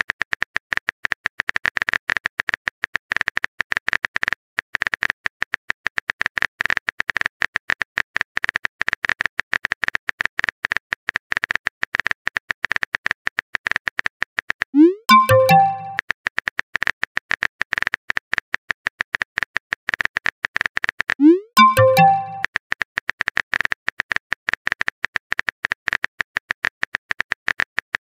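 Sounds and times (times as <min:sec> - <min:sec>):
sharp blips: 0:14.8 - 0:16.0, 0:21.2 - 0:22.4.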